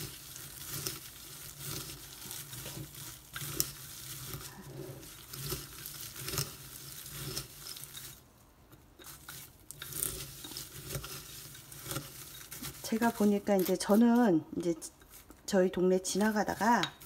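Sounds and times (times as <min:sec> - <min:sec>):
beans rattling in a glass bowl: 0:00.0 - 0:08.3, 0:09.0 - 0:14.3.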